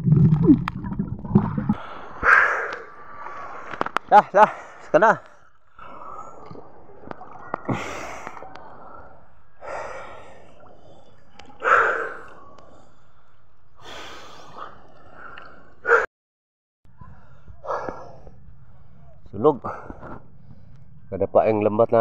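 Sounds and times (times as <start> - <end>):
water washing against microphone: 0.0 - 4.1
swimmer breathing heavily: 1.4 - 6.9, 7.7 - 16.1
small water splashes: 6.2 - 8.8.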